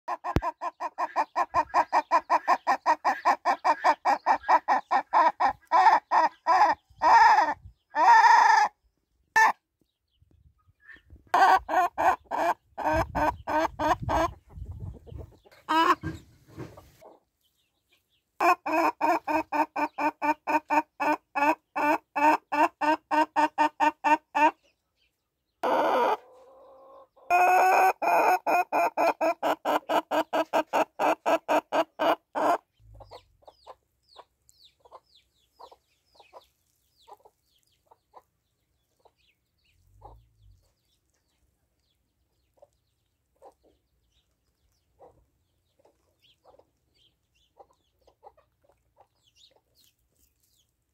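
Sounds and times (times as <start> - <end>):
hen clucking rapidly: 0.1 - 8.4, 10.8 - 17.2, 18.4 - 24.6, 26.9 - 39.3.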